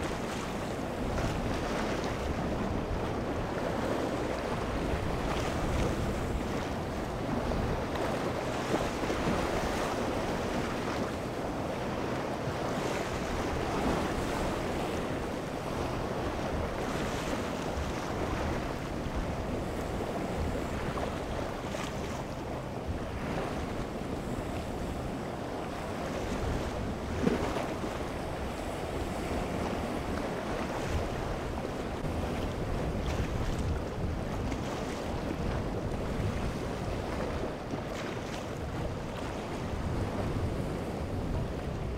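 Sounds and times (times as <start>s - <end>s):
wind buffeting microphone: 0.0s - 41.9s
waves breaking over rocks: 25.6s - 41.9s.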